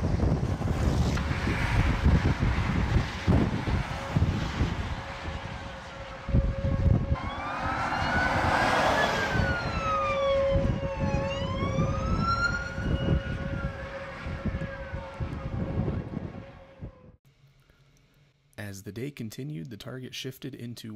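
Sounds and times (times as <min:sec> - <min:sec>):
wind rumbling on microphone: 0:00.0 - 0:17.2
steady low siren tone: 0:01.2 - 0:17.2
siren wailing: 0:03.4 - 0:17.2.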